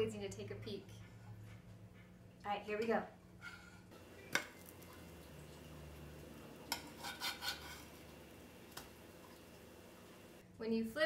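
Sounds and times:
metal spatula scraping griddle: 0:03.4 - 0:03.9, 0:06.7 - 0:08.0.

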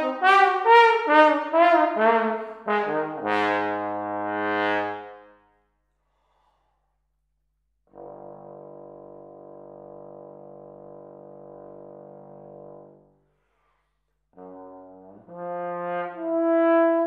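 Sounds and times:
solo trombone playing: 0:00.0 - 0:05.4, 0:08.0 - 0:13.1, 0:14.4 - 0:17.0.

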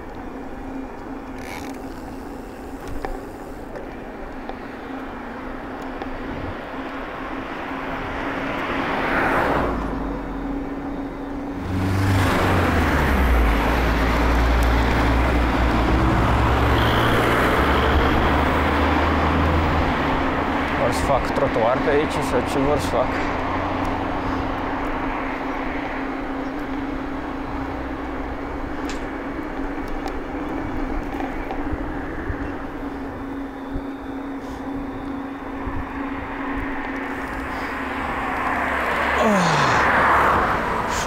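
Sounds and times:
vehicle passing: 0:07.3 - 0:10.8, 0:11.4 - 0:26.4, 0:35.8 - 0:41.0.

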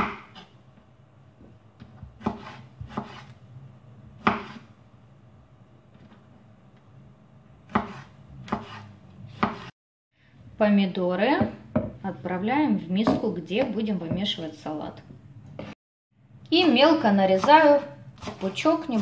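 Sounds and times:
knife chopping on wooden board: 0:01.8 - 0:03.3, 0:04.2 - 0:04.7, 0:07.7 - 0:09.7, 0:17.3 - 0:19.0.

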